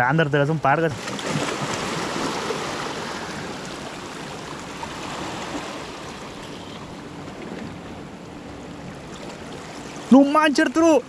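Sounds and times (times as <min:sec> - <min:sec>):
waves washing over rocks: 0:00.9 - 0:07.2.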